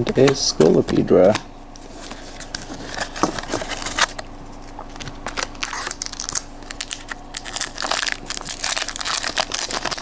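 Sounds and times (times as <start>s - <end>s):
foil wrapper crinkling: 4.8s - 10.0s.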